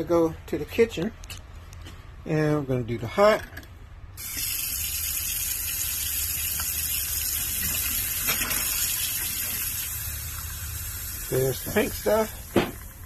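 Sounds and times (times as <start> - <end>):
faucet running: 4.2 - 13.0
water pump humming: 4.2 - 13.0.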